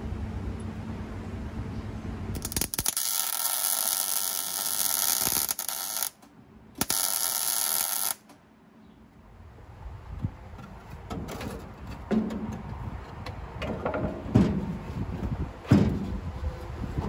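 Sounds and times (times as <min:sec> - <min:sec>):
arc welding crackling hiss: 0:02.4 - 0:06.2, 0:06.8 - 0:08.2.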